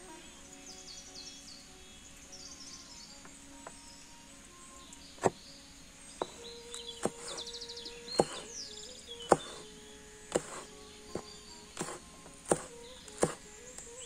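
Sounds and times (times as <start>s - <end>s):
small bird chirping: 0.0s - 14.0s
blade knocking on board: 6.2s - 6.4s, 7.0s - 7.5s, 8.2s - 8.5s, 9.3s - 9.7s, 10.3s - 13.4s
knife cutting on wooden board: 6.2s - 7.5s, 8.2s - 8.6s, 9.3s - 9.7s, 10.3s - 13.4s.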